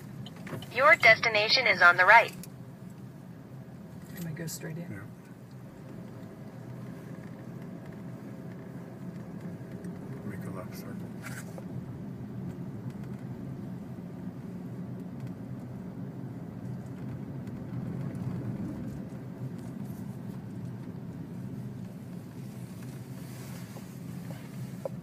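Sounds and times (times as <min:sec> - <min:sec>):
car engine and tyres humming: 0:00.0 - 0:25.0.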